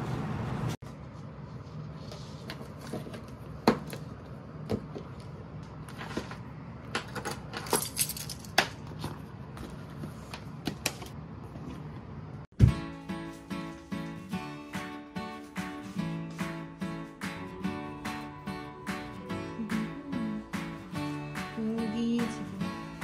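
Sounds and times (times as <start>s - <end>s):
keys jingling: 7.5s - 8.6s.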